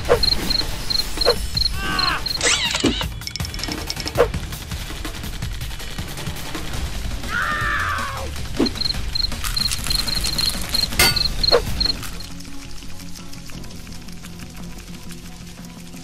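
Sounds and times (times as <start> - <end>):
high electronic chirps: 0.0 - 3.0, 8.6 - 12.3
background music: 0.0 - 16.0.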